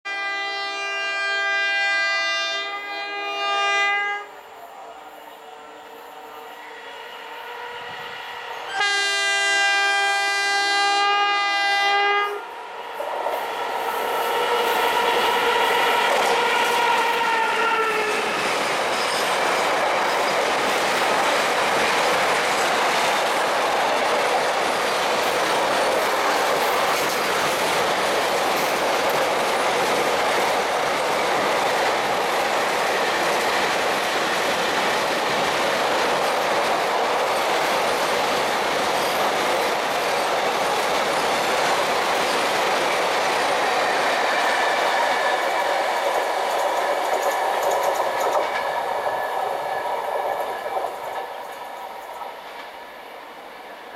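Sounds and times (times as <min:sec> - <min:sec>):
locomotive horn blasts: 0:00.1 - 0:04.4, 0:05.5 - 0:12.5
freight train wheels clattering: 0:14.0 - 0:52.8.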